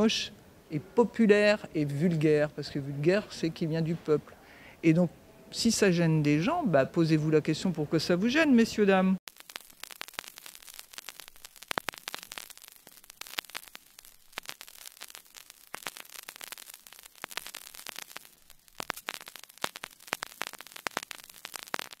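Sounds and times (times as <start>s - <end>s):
faint hiss: 0.0s - 22.0s
crackling static: 5.6s - 22.0s.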